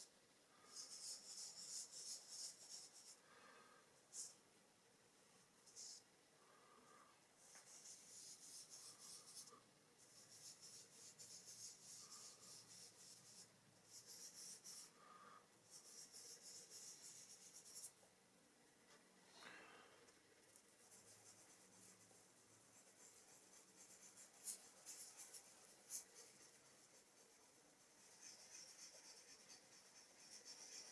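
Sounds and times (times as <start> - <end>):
hands rubbing pastel on paper: 0.7 - 3.2, 7.4 - 15.0, 15.7 - 18.0, 20.6 - 30.9.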